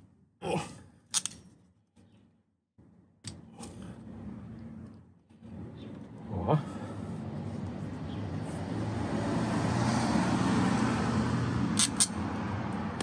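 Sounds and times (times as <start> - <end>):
low hum: 2.8 - 9.0
motor vehicle passing: 2.8 - 13.0
sharp clicks: 11.8 - 12.2.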